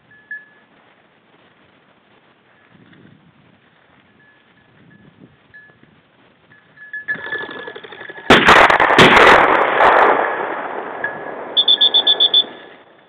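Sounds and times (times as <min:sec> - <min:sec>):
shotgun shots echoing: 0:08.3 - 0:12.6
high beeps: 0:11.1 - 0:12.6.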